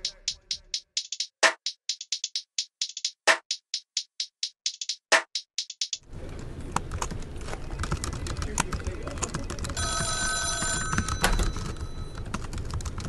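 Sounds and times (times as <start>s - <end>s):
electronic phone ringtone: 9.8s - 12.2s.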